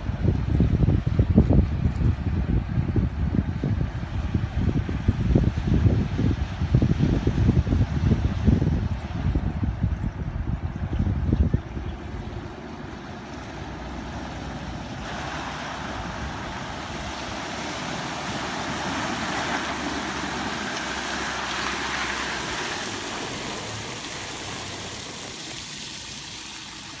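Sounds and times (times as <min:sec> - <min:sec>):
water rushing and splashing: 0:12.0 - 0:27.0.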